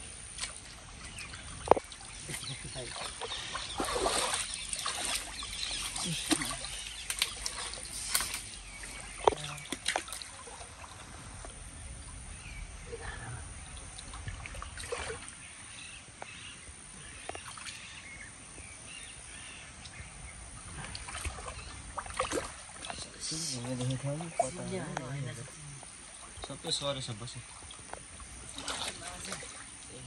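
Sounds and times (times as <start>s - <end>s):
stream water sloshing and splashing: 0.0s - 13.0s, 13.6s - 30.0s
faint bird calls: 1.0s - 11.1s, 11.7s - 24.6s.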